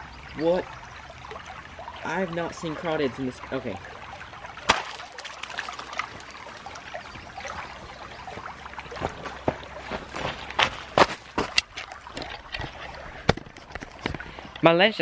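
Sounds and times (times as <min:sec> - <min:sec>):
water trickling: 0:00.0 - 0:15.0.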